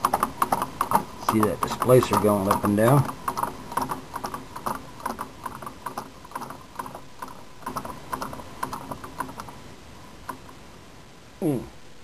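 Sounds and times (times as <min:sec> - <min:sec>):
engine linkages clicking rhythmically: 0:00.0 - 0:09.6.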